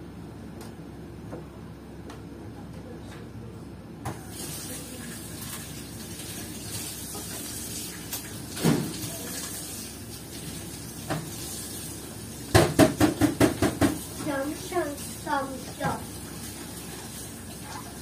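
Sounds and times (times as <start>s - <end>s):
tap water running into sink: 4.1s - 18.0s.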